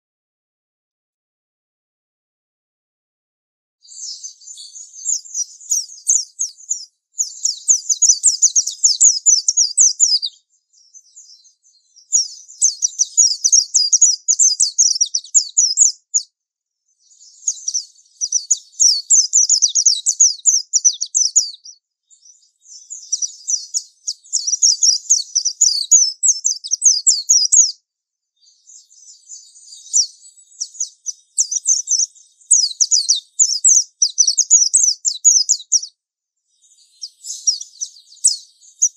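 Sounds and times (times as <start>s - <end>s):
bird high twittering song: 3.8s - 38.9s.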